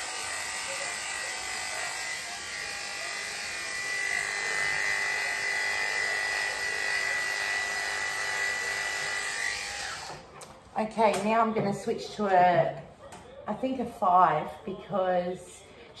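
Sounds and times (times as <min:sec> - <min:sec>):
electric clippers whining: 0:00.0 - 0:10.3.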